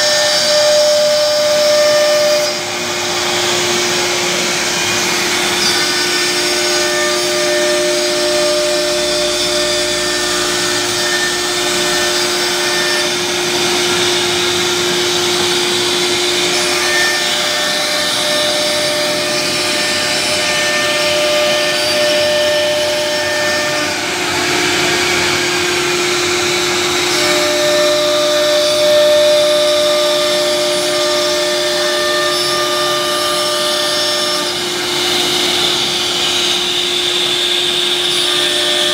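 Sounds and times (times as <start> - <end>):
router spindle whine: 0.0 - 38.9
rush of cutting wood: 0.0 - 38.9.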